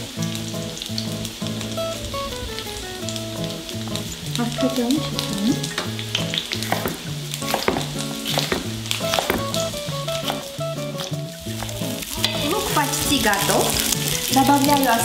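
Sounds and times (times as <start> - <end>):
onions sizzling in a pan: 0.0 - 15.0
knife chopping on wooden board: 6.6 - 9.7
soft background music: 7.5 - 15.0.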